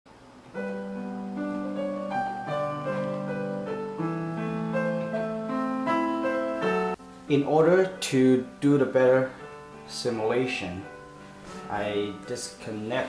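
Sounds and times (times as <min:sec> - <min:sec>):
slow piano melody: 0:00.2 - 0:13.0.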